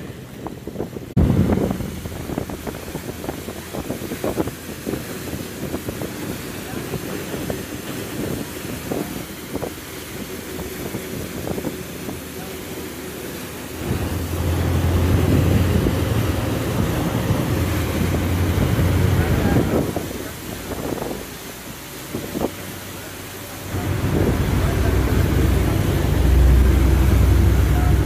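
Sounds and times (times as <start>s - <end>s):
wind buffeting microphone: 0.0s - 22.8s, 23.7s - 28.0s
boat diesel engines running: 0.0s - 28.0s
churning propeller wash: 0.0s - 28.0s.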